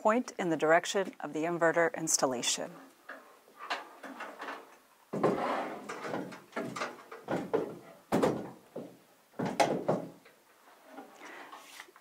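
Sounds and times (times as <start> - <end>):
sudden knocks: 6.1 - 10.2.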